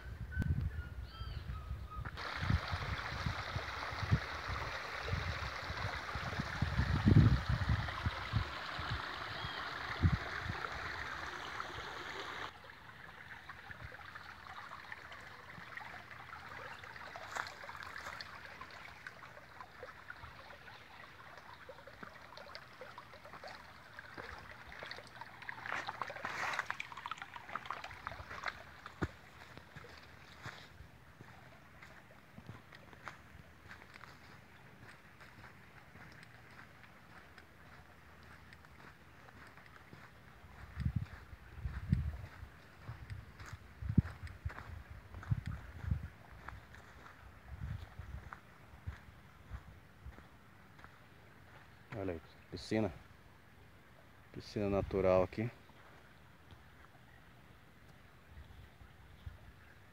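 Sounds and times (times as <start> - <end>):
stream rippling over rocks: 2.2 - 59.9.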